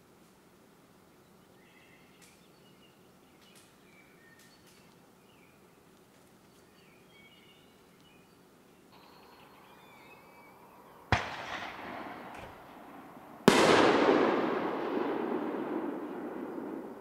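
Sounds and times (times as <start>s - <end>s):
sharp bangs with rumble: 11.1s - 17.0s.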